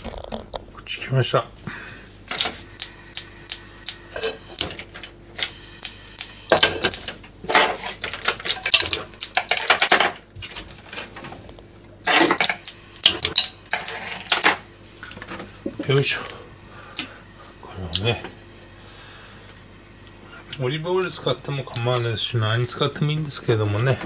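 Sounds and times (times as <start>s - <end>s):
gas stove igniter clicking: 2.3s - 7.2s, 12.2s - 14.6s.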